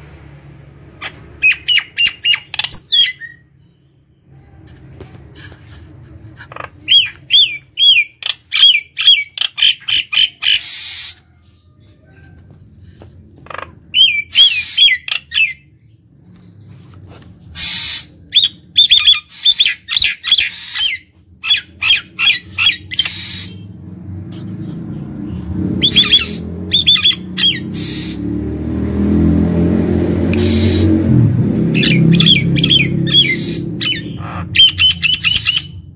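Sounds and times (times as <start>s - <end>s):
bird whistling and squawking: 1.0s - 3.4s, 6.8s - 11.3s, 13.9s - 15.7s, 17.5s - 23.7s, 25.8s - 28.2s, 30.3s - 31.0s, 31.7s - 35.9s.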